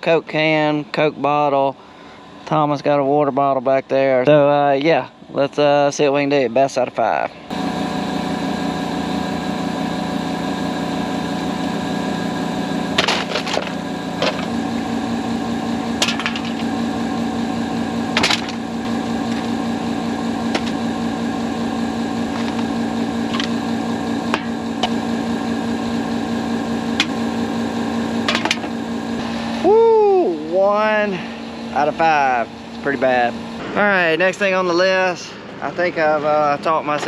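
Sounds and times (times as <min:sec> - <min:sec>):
pickup engine idling: 0:07.4 - 0:34.5.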